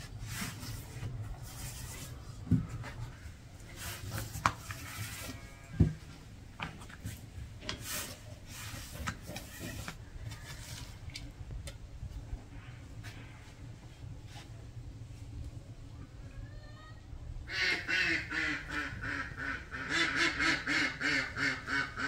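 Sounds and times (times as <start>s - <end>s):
rubbing and scraping on hard surface: 0.0s - 5.6s, 6.8s - 11.1s.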